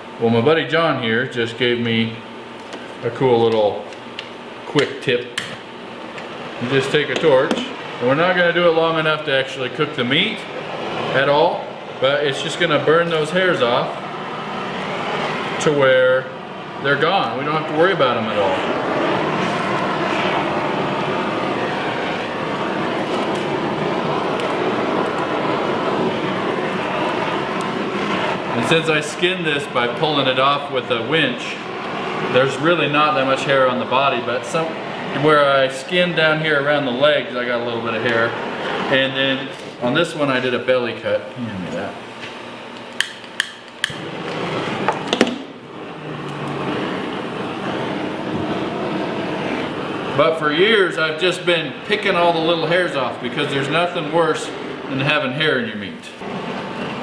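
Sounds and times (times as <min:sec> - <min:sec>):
propane torch hissing: 0:00.0 - 0:57.0
gas torch igniter clicks: 0:42.2 - 0:45.5.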